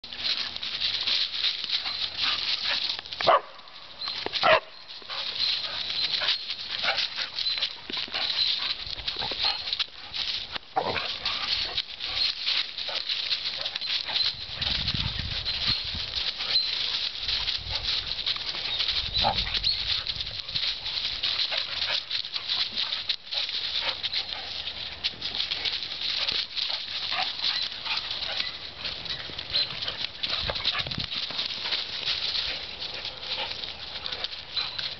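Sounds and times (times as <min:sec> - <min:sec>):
dry leaves crackling and rustling: 0:00.0 - 0:34.9
dog barking: 0:03.2 - 0:03.6, 0:04.4 - 0:04.7.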